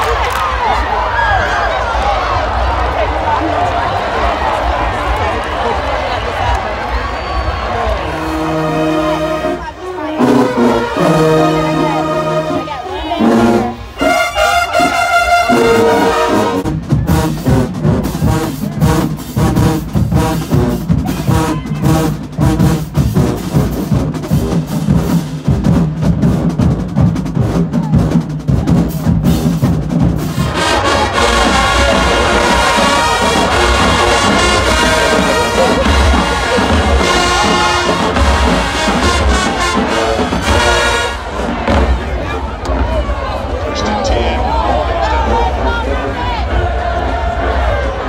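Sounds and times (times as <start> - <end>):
drums beating driving rhythm: 2.5 - 48.0
brass holding long chords: 7.9 - 24.4, 30.4 - 42.1.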